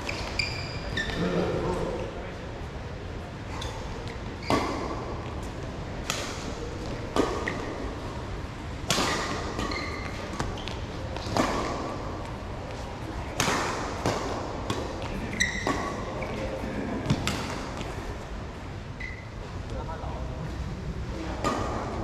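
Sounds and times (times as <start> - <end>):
rackets striking shuttlecock: 8.8 - 12.4, 13.3 - 16.1.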